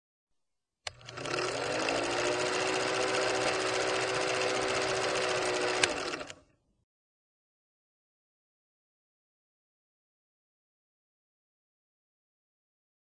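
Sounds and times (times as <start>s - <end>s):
film rattling through projector: 0.9s - 6.4s
film projector motor hum: 0.9s - 6.5s.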